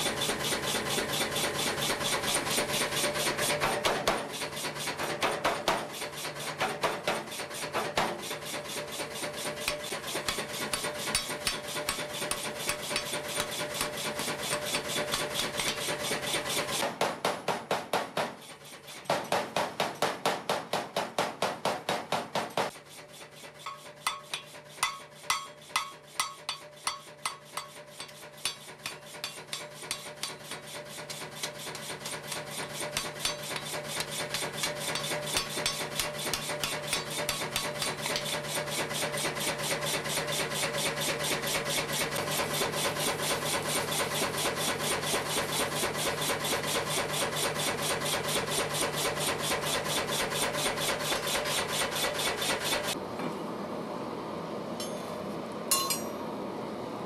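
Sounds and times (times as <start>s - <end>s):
hammer striking metal on anvil: 9.6s - 15.9s, 23.6s - 38.4s, 54.8s - 56.3s.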